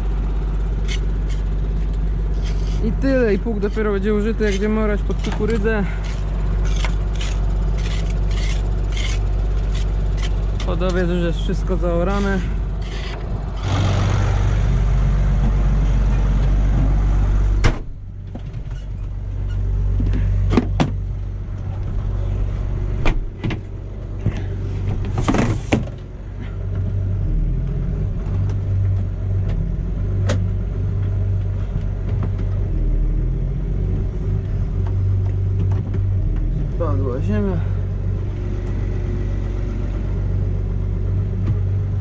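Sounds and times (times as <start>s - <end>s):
tractor engine running: 0.0s - 42.0s
cab door shutting: 23.0s - 23.7s.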